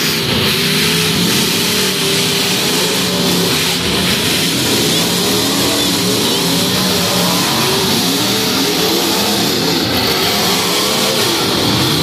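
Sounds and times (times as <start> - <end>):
car engines revving together: 0.0 - 12.0.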